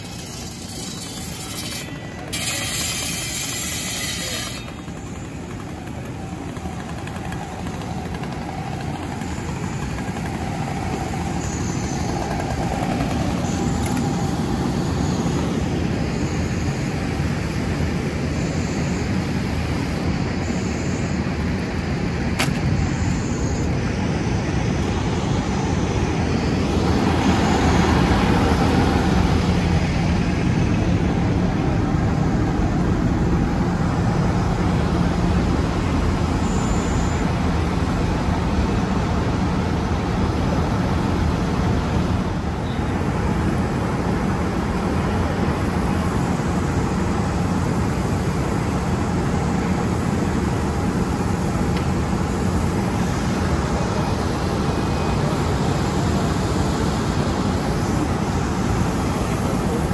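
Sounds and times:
hose spraying water: 0.0 - 4.8
fire engine pump running: 0.0 - 59.9.

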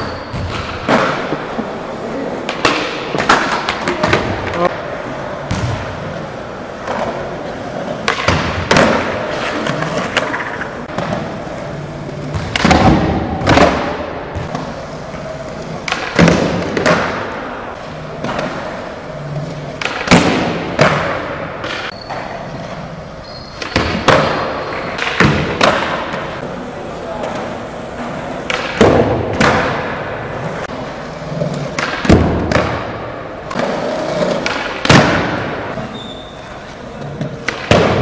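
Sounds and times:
skateboard wheels rolling on concrete: 0.0 - 38.0
skateboard clacks: 2.4 - 4.8, 6.7 - 11.5, 15.4 - 17.5, 18.2 - 22.2, 23.6 - 26.4, 27.2 - 35.8.

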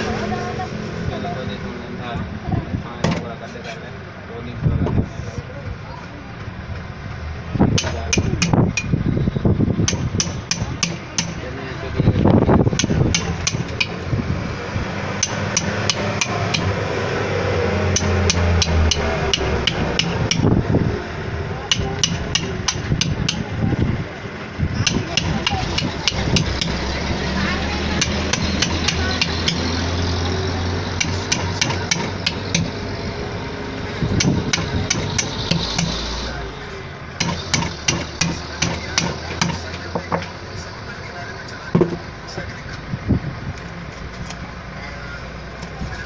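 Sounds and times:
mallet striking knife: 7.8 - 8.9, 9.8 - 11.4, 12.7 - 14.0, 15.2 - 16.8, 17.9 - 20.5, 21.7 - 23.5, 24.8 - 26.9, 27.9 - 29.7, 31.0 - 32.8, 34.2 - 36.2, 37.2 - 39.7.

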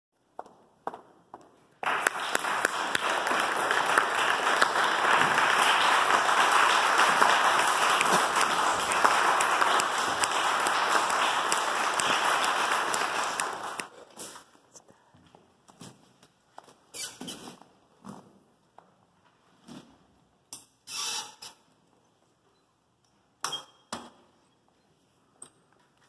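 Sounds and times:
audience applauding: 1.8 - 13.9.

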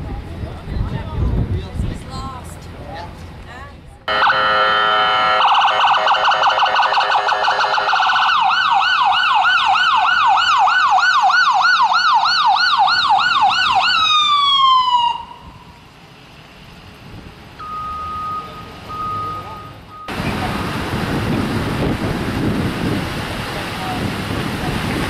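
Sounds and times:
ambulance siren wailing: 4.1 - 15.8.

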